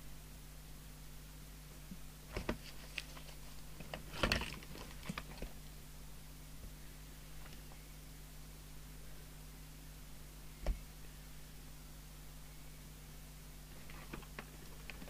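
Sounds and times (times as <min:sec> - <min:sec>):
paper sheets rustling: 0:02.3 - 0:05.6, 0:13.8 - 0:15.0.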